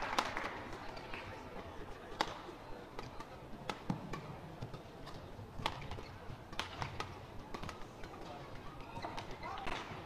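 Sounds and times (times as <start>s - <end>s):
sports hall background: 0.0s - 10.0s
racket hitting shuttlecock: 3.0s - 8.2s.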